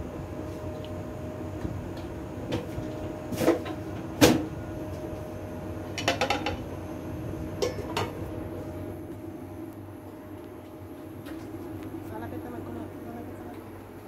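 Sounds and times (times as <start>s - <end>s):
steady background hum: 0.0s - 14.0s
kitchen knocks and clatter: 6.0s - 6.6s.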